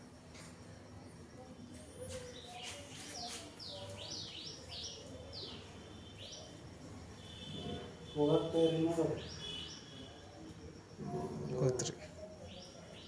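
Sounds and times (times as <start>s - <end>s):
small bird chirping: 2.0s - 6.6s.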